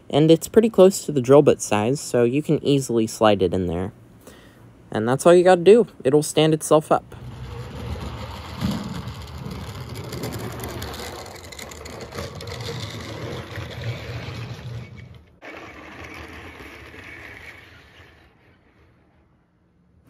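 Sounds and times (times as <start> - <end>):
model train motor whirring: 7.2 - 19.1.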